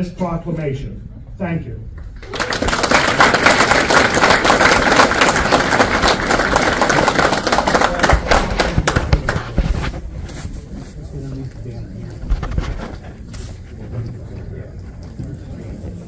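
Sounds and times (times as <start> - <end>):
audience applauding: 2.0 - 9.6.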